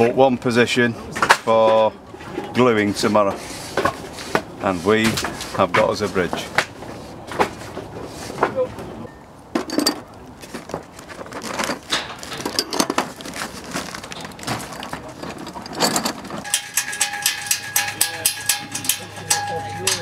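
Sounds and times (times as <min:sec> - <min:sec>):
steel bolts clattering into wheelbarrow: 0:09.6 - 0:10.1, 0:11.3 - 0:13.3, 0:14.0 - 0:20.0
faint steady ring: 0:15.6 - 0:20.0.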